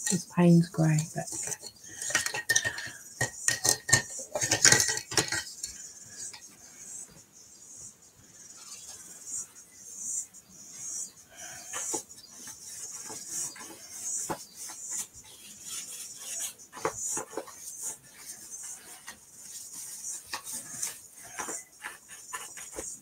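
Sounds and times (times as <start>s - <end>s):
paintbrush scrubbing on paper: 10.7s - 23.0s.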